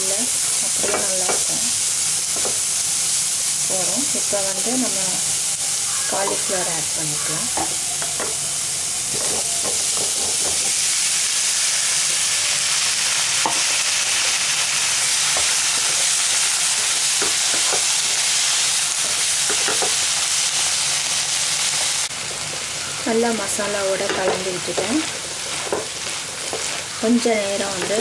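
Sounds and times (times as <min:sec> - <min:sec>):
vegetables sizzling in oil: 0:00.0 - 0:28.0
wooden spatula scraping and tapping: 0:09.1 - 0:10.8, 0:25.5 - 0:26.8.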